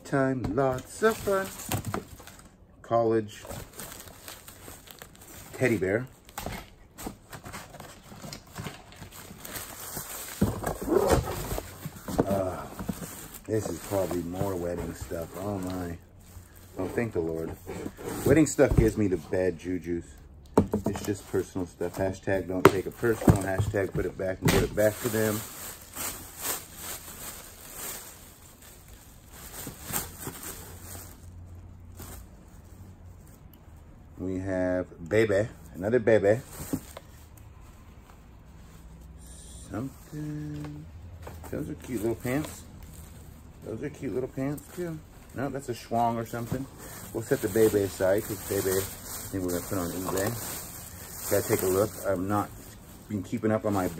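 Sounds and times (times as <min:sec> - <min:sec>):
papers and objects shifting: 0:00.4 - 0:02.6, 0:03.3 - 0:19.3, 0:20.6 - 0:33.5, 0:36.3 - 0:39.2, 0:39.8 - 0:53.9
plastic bags crinkling: 0:00.7 - 0:02.6, 0:03.3 - 0:19.1, 0:20.9 - 0:32.5, 0:41.4 - 0:53.9.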